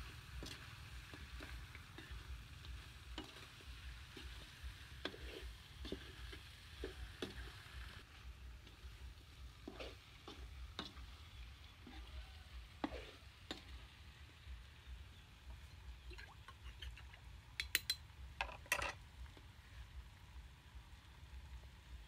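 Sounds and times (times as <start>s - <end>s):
metal spatula scraping a wok: 0.3s - 7.6s, 9.5s - 11.1s, 12.8s - 13.7s.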